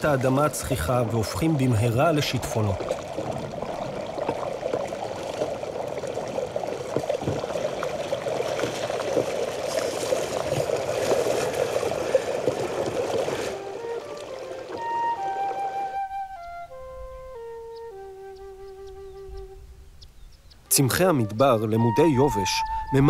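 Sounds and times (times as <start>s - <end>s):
flood water rushing: 0.0s - 16.3s
flute music: 13.3s - 19.8s, 20.7s - 23.0s.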